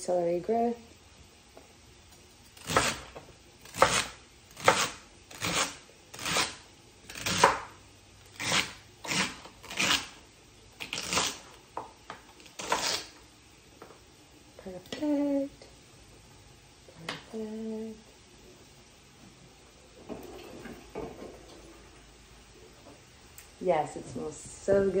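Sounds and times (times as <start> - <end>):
knife slicing celery on cutting board: 2.6 - 7.7, 8.4 - 10.2, 12.6 - 13.1.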